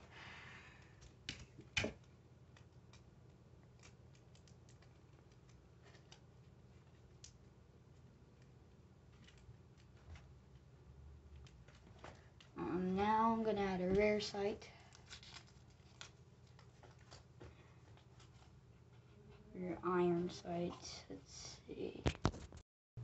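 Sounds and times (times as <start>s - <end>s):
paper crinkles: 14.8s - 17.3s.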